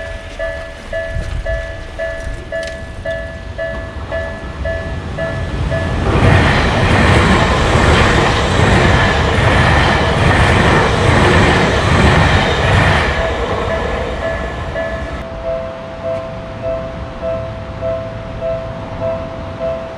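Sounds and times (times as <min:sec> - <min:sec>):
level crossing warning bell: 0:00.0 - 0:08.1, 0:13.0 - 0:19.9
electric train passing: 0:00.0 - 0:19.9.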